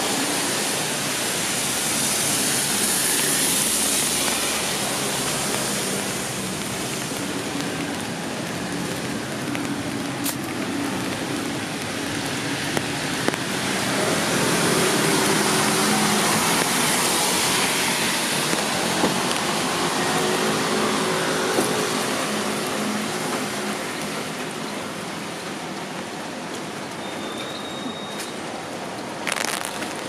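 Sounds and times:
car tyres hissing on wet road: 0.0 - 30.0
steady rain: 0.0 - 30.0.

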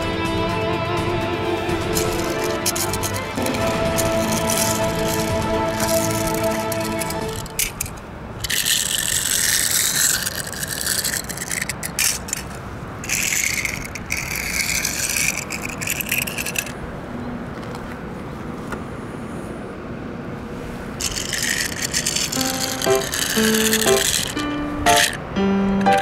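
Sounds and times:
toy car wheels scraping concrete: 1.7 - 18.0, 20.6 - 25.2.

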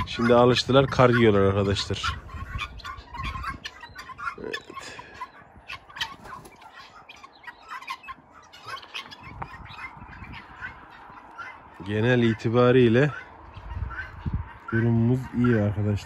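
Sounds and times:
chickens and guinea fowl clucking: 0.0 - 16.0.

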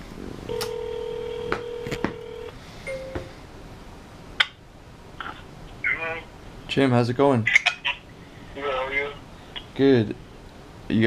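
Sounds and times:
telephone ringback tone: 0.5 - 3.3.

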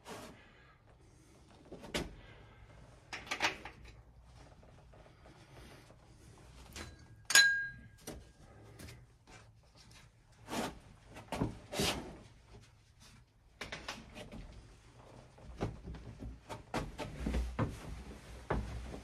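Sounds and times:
sharp ringing clink: 7.3 - 8.0.

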